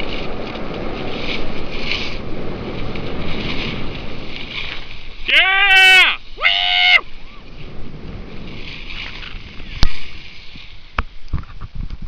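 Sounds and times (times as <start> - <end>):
wind on microphone: 0.0 - 12.0.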